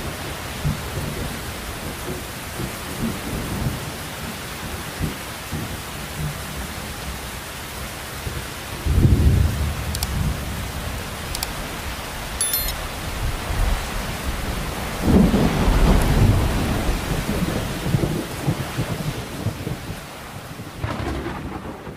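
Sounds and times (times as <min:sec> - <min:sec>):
heavy rain: 0:00.0 - 0:21.9
thunder rumbling: 0:20.8 - 0:21.8.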